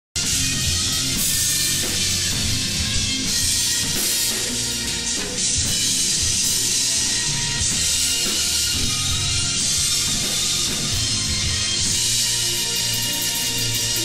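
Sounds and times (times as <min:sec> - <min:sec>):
rock drum kit playing: 0:00.2 - 0:14.0.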